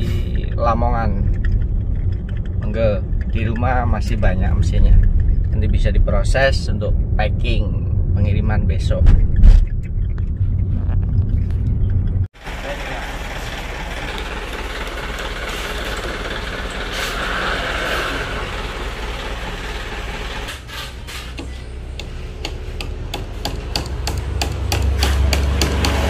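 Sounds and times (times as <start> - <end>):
car engine idling: 0.0 - 7.6, 9.6 - 20.7.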